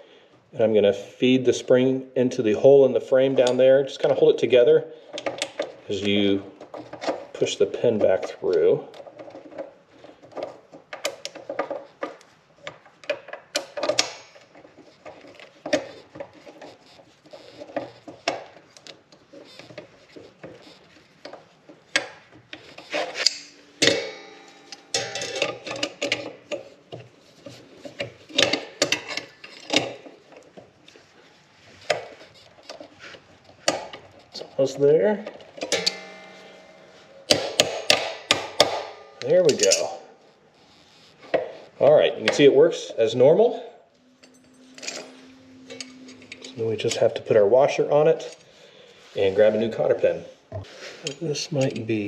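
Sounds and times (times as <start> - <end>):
metal parts rattling: 5.0 - 41.4, 44.0 - 48.6
metallic clicks taps and scrapes: 5.1 - 7.4, 8.0 - 31.0, 35.2 - 39.9, 44.0 - 47.2.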